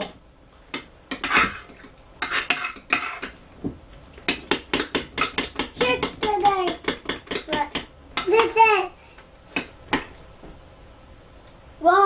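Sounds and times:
spoons scraping plastic bowls: 0:01.1 - 0:03.4.

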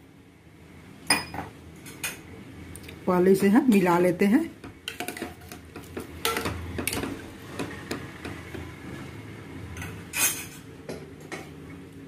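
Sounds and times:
ladle clinking and scraping pot: 0:04.9 - 0:09.1, 0:09.7 - 0:10.7.

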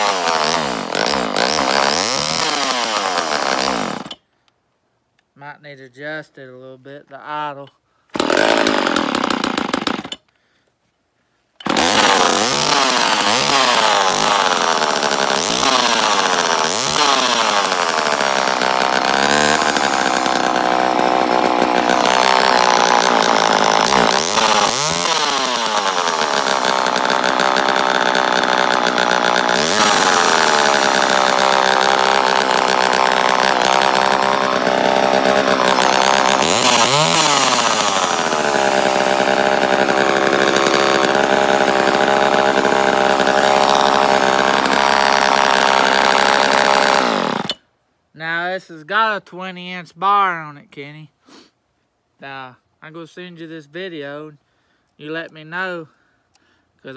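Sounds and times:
chainsaw engine revving: 0:00.0 - 0:04.2, 0:08.1 - 0:10.2, 0:11.6 - 0:47.6.

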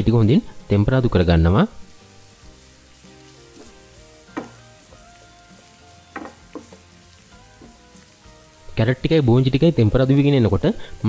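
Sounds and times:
vegetables sizzling in oil: 0:00.0 - 0:11.0
wooden spatula knocking pan: 0:03.5 - 0:04.9, 0:06.0 - 0:07.0.

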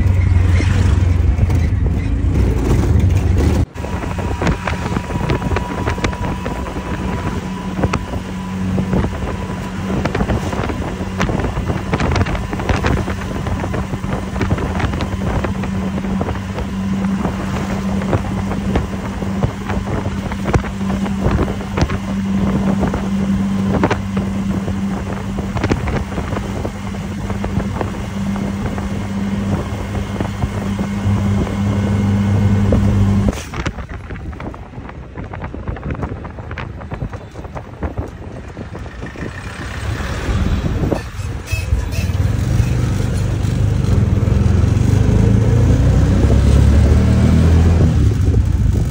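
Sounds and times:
vehicle engine drone: 0:00.0 - 0:48.9
wind buffeting microphone: 0:00.0 - 0:48.9.

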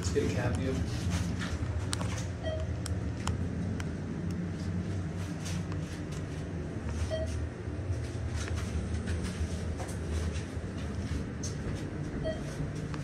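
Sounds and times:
elevator rumble and hum: 0:00.0 - 0:13.0.

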